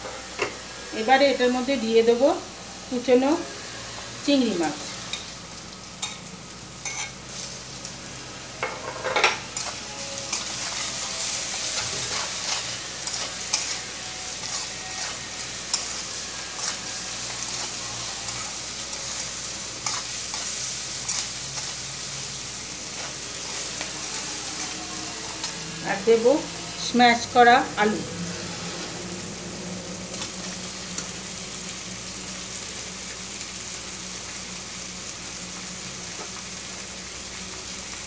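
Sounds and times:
food sizzling in hot oil: 0:00.0 - 0:38.0
metal spatula scraping a pan: 0:06.8 - 0:07.8, 0:08.6 - 0:27.6.

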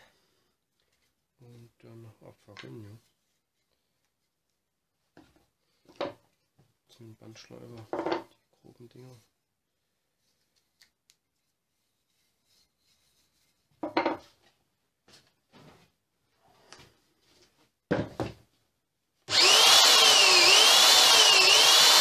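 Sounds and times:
wooden knocks and clatters: 0:07.8 - 0:08.3, 0:13.8 - 0:14.4
belt sander whining: 0:19.3 - 0:22.0.

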